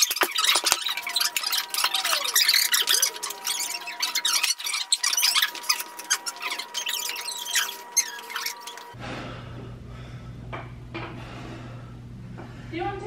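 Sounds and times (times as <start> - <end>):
squeaks and clicks: 0.0 - 9.0
low electrical hum: 0.0 - 13.0.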